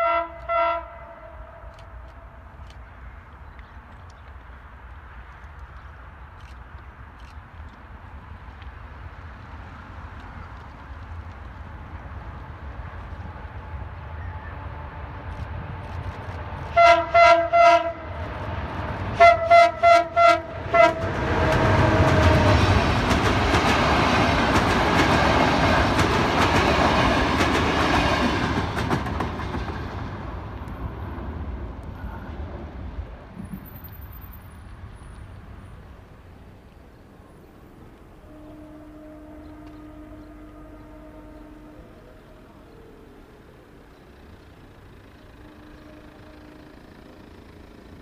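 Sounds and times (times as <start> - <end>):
locomotive horn short toots: 0.0 - 2.3, 16.7 - 18.2, 19.2 - 22.6, 38.2 - 42.7, 45.2 - 47.2
train wheels clattering over rail joints: 21.0 - 30.8.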